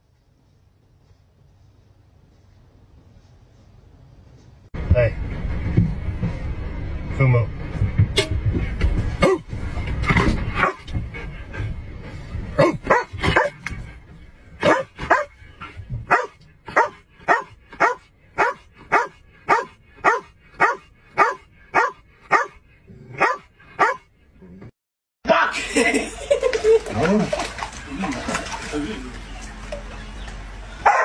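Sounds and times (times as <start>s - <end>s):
dog barking: 10.6s - 10.9s, 12.6s - 13.6s, 14.6s - 15.3s, 16.1s - 24.1s.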